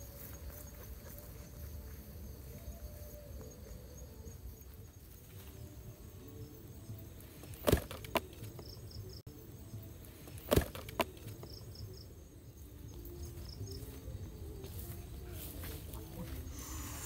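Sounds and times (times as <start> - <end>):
crickets chirping: 0.0 - 17.0.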